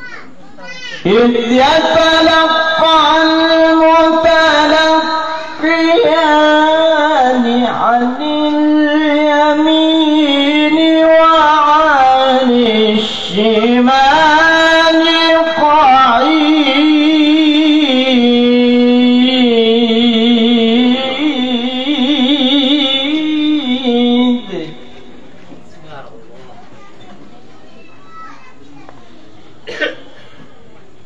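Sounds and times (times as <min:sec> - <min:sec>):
man reciting melodically: 0:00.7 - 0:25.4.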